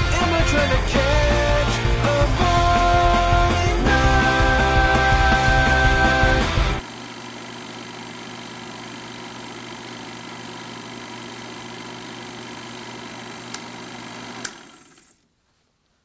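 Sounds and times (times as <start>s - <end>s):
film projector whirring: 2.4s - 15.2s.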